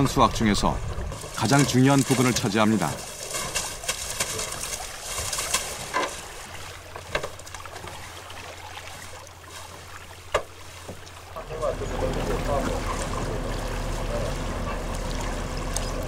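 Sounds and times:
water trickling and dripping: 0:00.0 - 0:16.0
wet net being hauled: 0:01.1 - 0:16.0.

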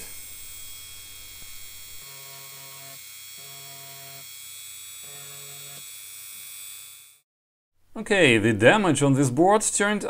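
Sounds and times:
low buzz: 0:00.0 - 0:04.3
rotary tool whining: 0:00.0 - 0:07.2.

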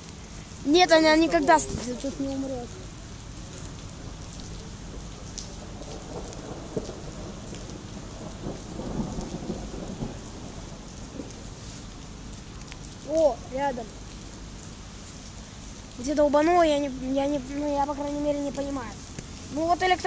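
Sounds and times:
rain on wet pavement: 0:00.0 - 0:20.0
thunder rumbling: 0:04.0 - 0:13.0.

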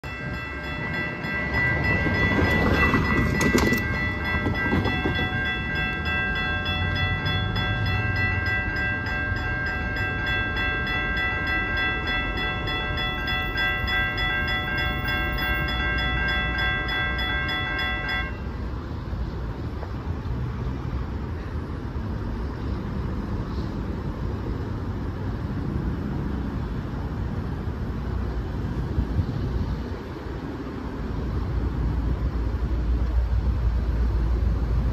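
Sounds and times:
crossing warning bells ringing: 0:00.0 - 0:19.4
passing traffic rush: 0:00.0 - 0:34.9
road and wind noise: 0:00.0 - 0:34.9.

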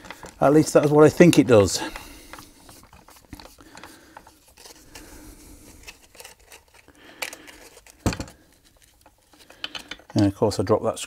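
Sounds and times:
faint scraping of parts: 0:00.0 - 0:10.6
small clicks of parts: 0:05.8 - 0:10.3.

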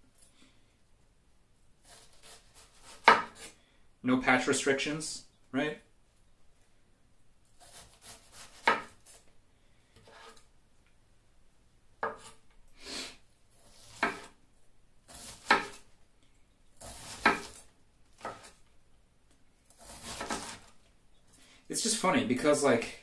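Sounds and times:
knife slicing cabbage: 0:01.8 - 0:03.6, 0:07.5 - 0:09.3, 0:10.0 - 0:10.5, 0:12.0 - 0:14.4, 0:15.0 - 0:15.9, 0:16.8 - 0:18.6, 0:19.7 - 0:20.8
knife striking a cutting board: 0:15.3 - 0:15.8.

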